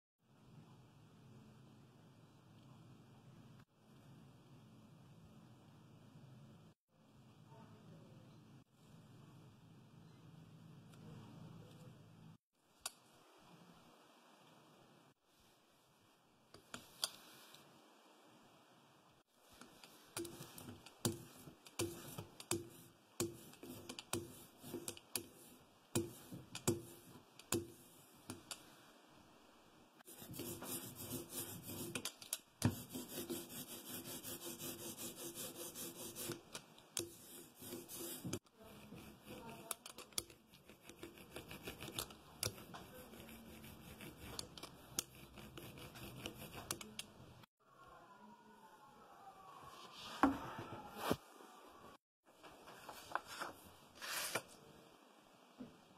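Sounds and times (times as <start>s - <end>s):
hand tools scraping linocut block: 30.1s - 47.0s.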